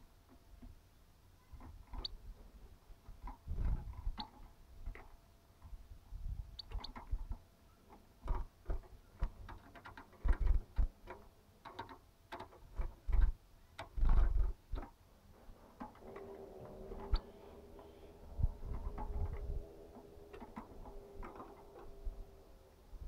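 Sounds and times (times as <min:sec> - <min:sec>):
low hum: 0:15.4 - 0:23.0.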